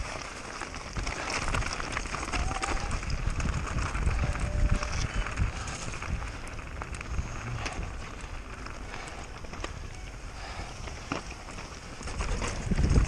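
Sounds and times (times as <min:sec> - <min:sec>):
bike rattling and knocking: 0:00.0 - 0:13.0
tyres over rough ground: 0:00.0 - 0:13.0
wind buffeting microphone: 0:00.9 - 0:13.0.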